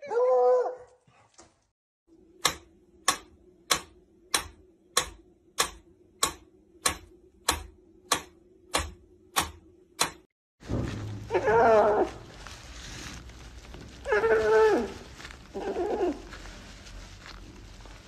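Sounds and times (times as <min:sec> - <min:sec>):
dog whining: 0:14.0 - 0:16.3.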